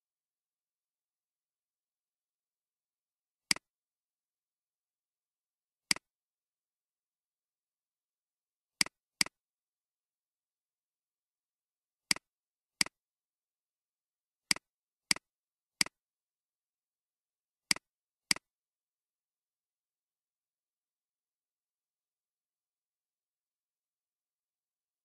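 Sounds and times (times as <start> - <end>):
computer mouse clicks: 17.7 - 18.5.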